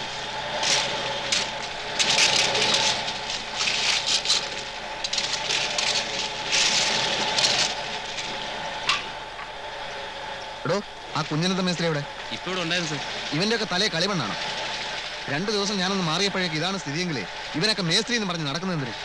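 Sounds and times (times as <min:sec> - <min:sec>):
clatter of construction work: 0:00.0 - 0:09.6
engine running: 0:00.0 - 0:19.0.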